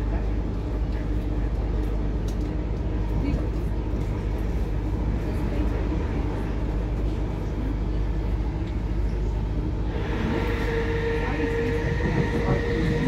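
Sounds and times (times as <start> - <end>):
train rumbling on rails: 0.0 - 13.0
high whine: 9.8 - 13.0.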